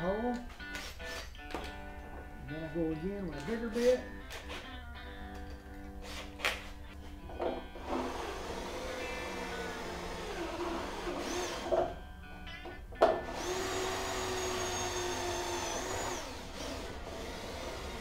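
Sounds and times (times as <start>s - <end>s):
electric drill through plastic: 7.8s - 12.0s, 13.0s - 18.0s.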